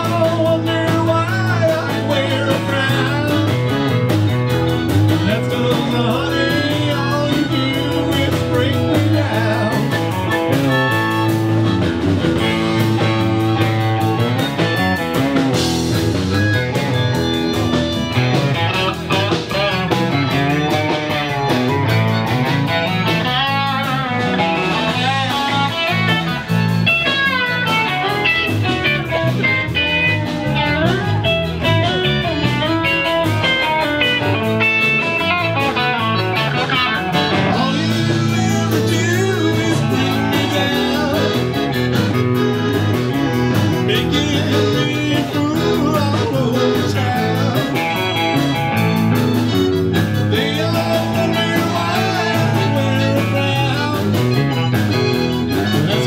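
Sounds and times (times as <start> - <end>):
person singing: 0.0 - 3.9, 5.1 - 10.9, 27.0 - 42.2, 43.0 - 49.1, 50.0 - 56.0
blues music with electric guitar: 0.0 - 56.0.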